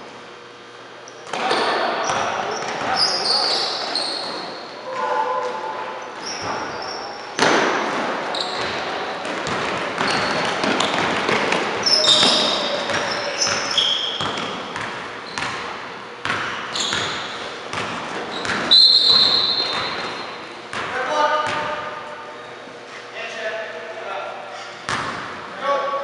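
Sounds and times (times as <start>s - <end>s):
sneakers squeaking: 1.0s - 23.1s, 24.4s - 25.5s
basketball bouncing on hardwood: 9.4s - 11.6s, 14.2s - 21.7s
voices calling out: 11.6s - 14.2s.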